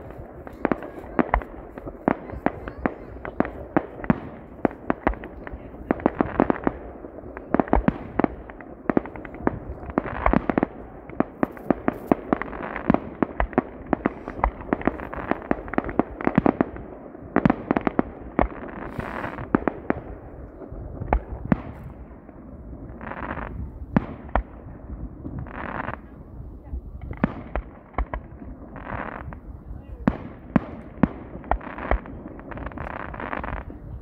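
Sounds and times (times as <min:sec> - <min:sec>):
fireworks bangs and crackling: 0:00.0 - 0:34.0
firework hiss: 0:18.7 - 0:19.5.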